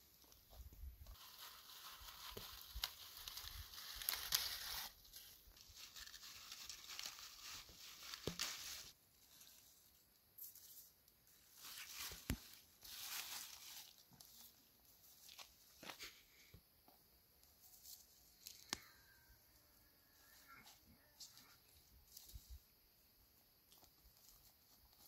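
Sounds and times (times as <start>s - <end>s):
lettuce leaves rustling: 0.1s - 10.0s, 11.3s - 16.2s.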